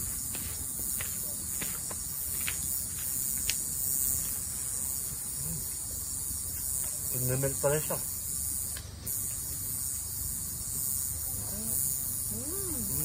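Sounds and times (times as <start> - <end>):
night insects chirping: 0.0 - 13.0.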